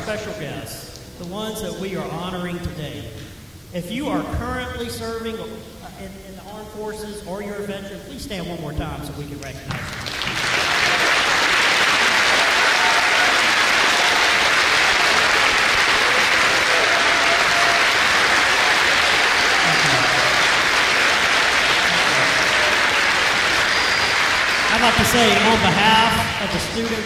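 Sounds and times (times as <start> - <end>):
crowd applauding: 9.7 - 27.0.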